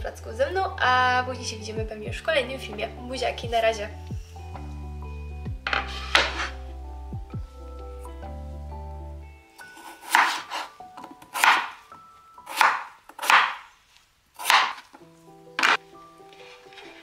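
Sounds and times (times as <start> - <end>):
knife chopping on wooden board: 9.8 - 11.8, 12.5 - 13.7, 14.4 - 14.9.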